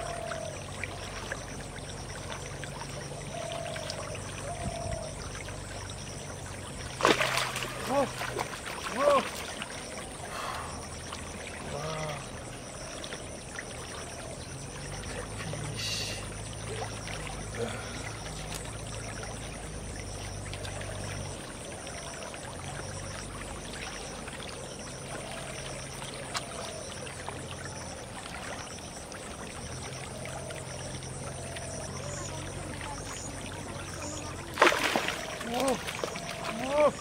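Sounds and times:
low engine hum: 0:00.0 - 0:37.0
stream water trickling: 0:00.0 - 0:37.0.

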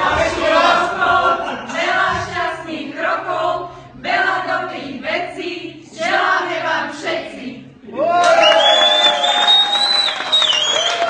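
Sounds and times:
women singing together: 0:00.0 - 0:07.9.

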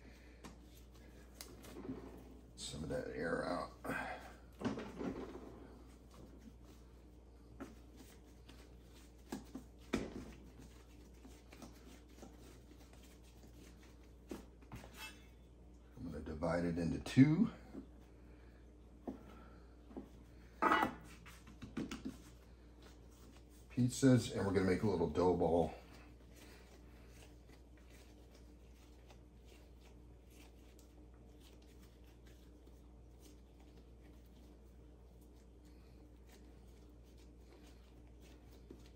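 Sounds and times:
hands kneading dough: 0:00.0 - 0:16.6, 0:17.5 - 0:38.9
low steady hum: 0:00.0 - 0:38.9.

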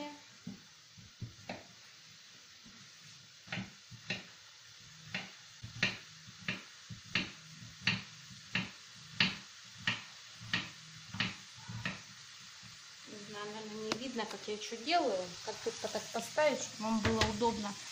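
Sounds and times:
knife chopping on cutting board: 0:05.1 - 0:12.0.

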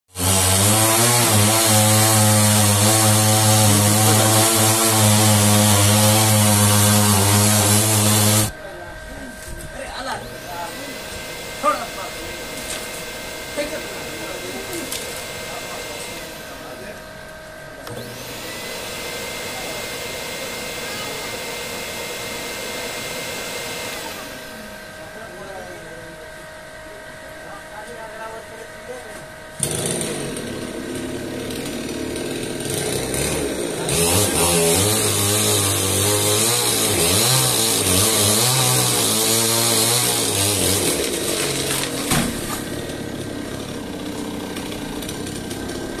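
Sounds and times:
chainsaw cutting wood: 0:00.1 - 0:08.6, 0:10.1 - 0:17.2, 0:17.8 - 0:25.0, 0:29.6 - 0:46.0
motor running with whine: 0:00.2 - 0:46.0.

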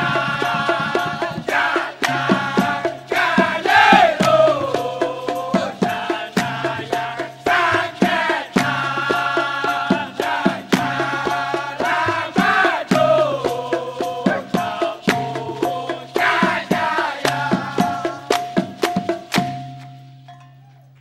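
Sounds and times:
men singing in chorus: 0:00.0 - 0:18.8
rhythmic hand clapping: 0:00.0 - 0:20.0
percussion beats: 0:00.0 - 0:21.0.

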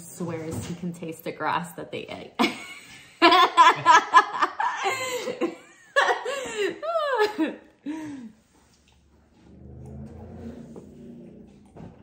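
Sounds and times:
woman laughing: 0:02.4 - 0:08.3.

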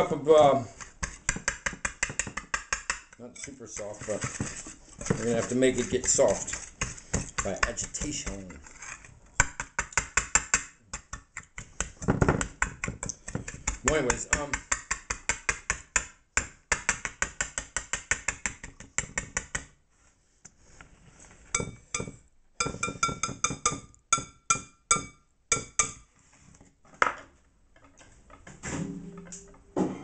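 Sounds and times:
whisk knocked against glass bowl: 0:21.6 - 0:26.0.

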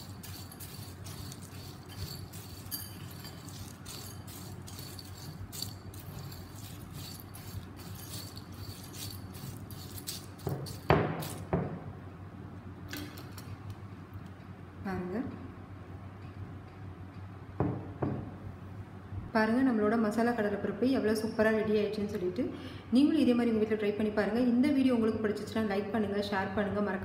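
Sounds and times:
spoon stirring fried lentils: 0:00.0 - 0:11.4.

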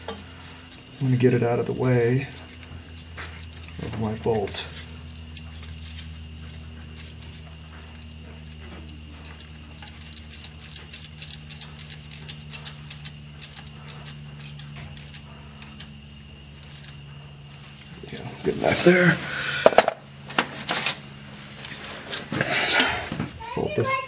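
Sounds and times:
steady low hum: 0:00.0 - 0:24.0
socket ratchet clicking: 0:02.4 - 0:06.2, 0:07.0 - 0:17.9.

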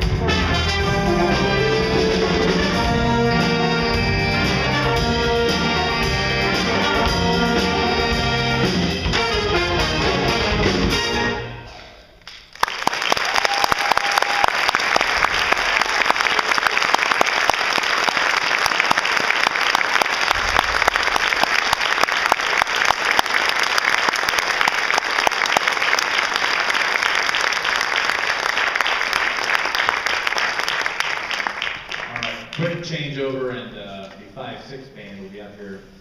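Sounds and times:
big band chord: 0:00.0 - 0:11.8
audience applause: 0:12.3 - 0:32.7.

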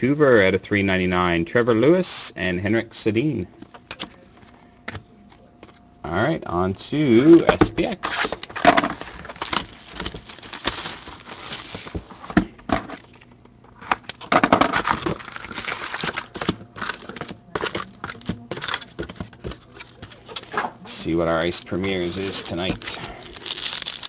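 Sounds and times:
wrappers crinkling and rustling: 0:07.3 - 0:12.3, 0:14.7 - 0:24.0.

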